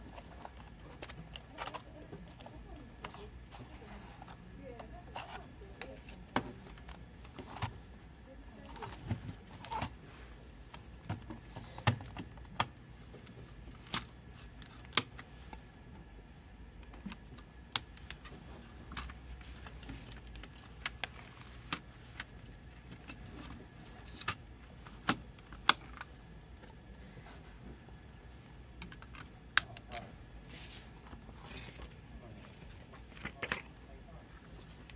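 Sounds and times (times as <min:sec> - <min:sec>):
plastic cd cases clicking: 0:08.6 - 0:10.0, 0:11.0 - 0:12.7, 0:16.8 - 0:26.1, 0:28.8 - 0:30.0.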